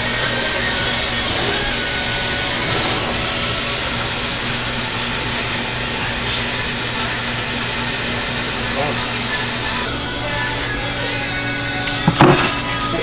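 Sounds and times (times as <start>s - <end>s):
constant whooshing: 0.0s - 9.9s
motor humming: 0.0s - 11.8s.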